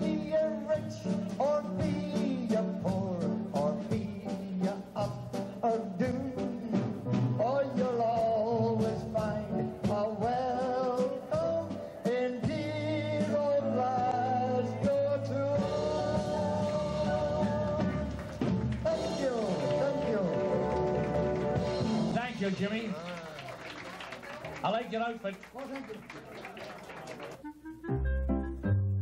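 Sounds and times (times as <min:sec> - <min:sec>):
person singing into a microphone: 0:00.0 - 0:18.2
small band playing: 0:00.0 - 0:29.0.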